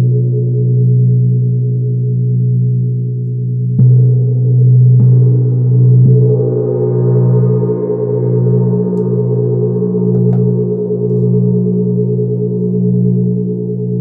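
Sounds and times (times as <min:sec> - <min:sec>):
large gong ringing: 0:06.2 - 0:12.5.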